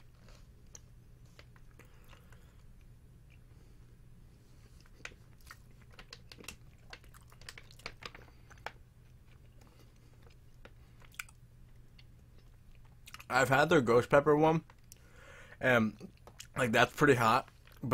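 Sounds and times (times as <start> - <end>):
person chewing: 0.0 - 3.6, 4.6 - 13.3, 16.0 - 16.6
low steady hum: 0.0 - 17.9.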